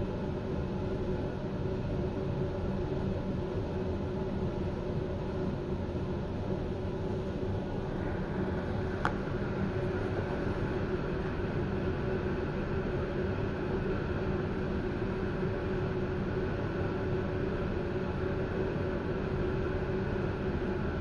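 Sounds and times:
train carriage hum: 3.7s - 18.2s.

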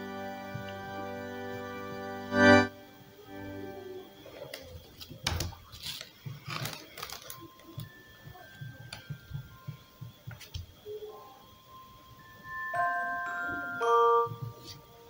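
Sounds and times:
faint background music: 0.0s - 15.0s
plastic sheeting crinkling: 4.2s - 9.1s.

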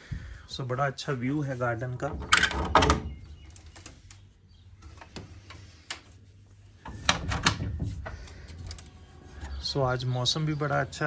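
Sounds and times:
window frame knocks and rattles: 6.9s - 8.3s.

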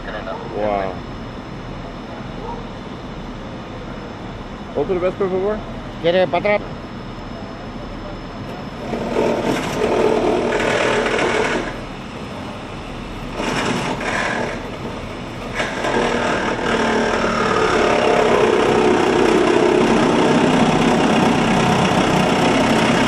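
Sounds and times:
engine with fast rattle: 8.8s - 12.0s, 13.2s - 23.0s.

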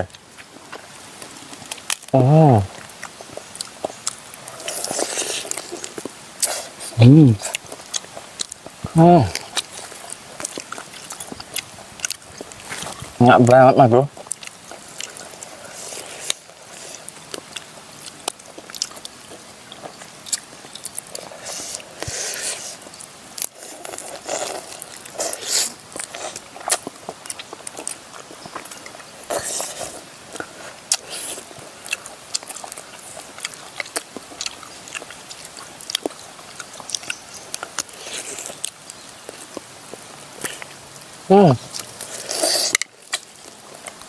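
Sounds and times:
person chewing and biting meat: 2.7s - 13.1s, 14.1s - 40.8s, 41.6s - 44.0s
crunching: 14.1s - 40.8s.

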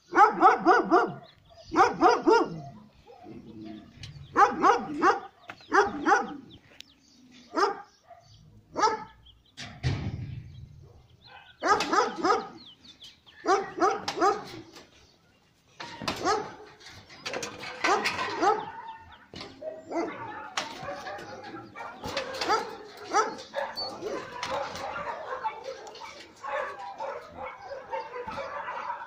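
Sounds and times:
dog barking: 0.1s - 6.5s, 7.5s - 9.2s, 10.8s - 12.6s, 13.4s - 14.6s, 16.1s - 16.7s, 17.8s - 29.0s.

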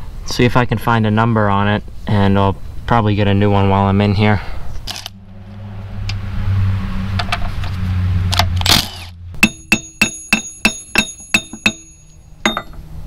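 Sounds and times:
sharp metallic ringing clicks: 9.4s - 12.8s.

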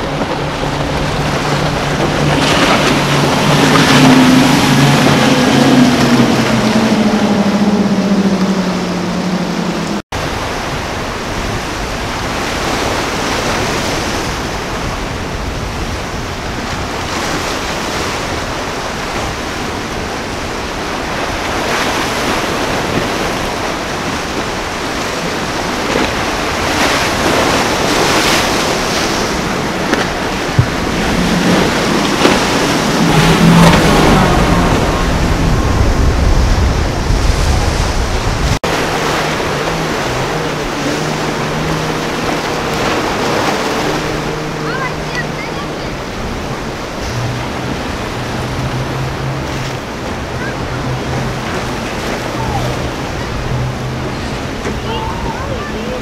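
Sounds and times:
boat outboard motors passing: 0.0s - 56.0s
ocean surf: 0.0s - 56.0s
wind buffeting microphone: 0.0s - 56.0s.

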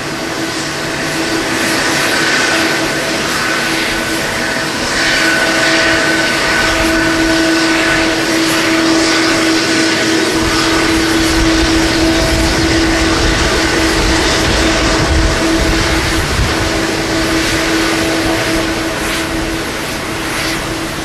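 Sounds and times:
deep jet engine rumble: 0.0s - 21.0s
jet engines whining: 0.0s - 21.0s.

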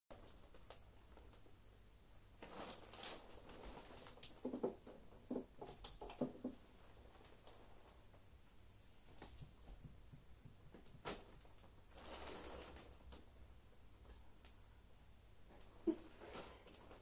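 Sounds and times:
rustling: 2.4s - 14.7s.

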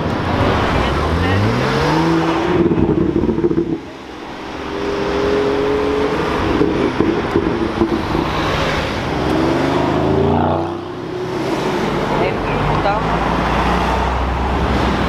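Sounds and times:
car engines accelerating: 0.0s - 15.0s
engine revving: 0.0s - 15.0s
exhaust pops: 2.2s - 4.0s, 6.3s - 9.5s.

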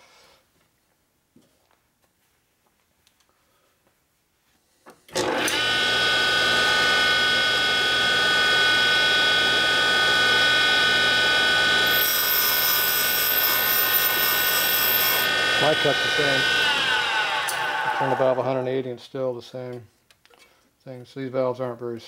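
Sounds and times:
grinder motor whine: 5.1s - 18.6s
high tone of valve grinding: 5.2s - 18.4s.

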